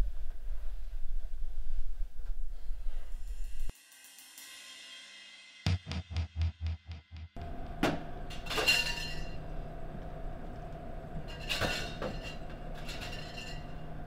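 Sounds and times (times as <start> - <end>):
low background hum: 7.4 - 14.0
glassware clinking: 8.3 - 9.4, 11.3 - 13.9.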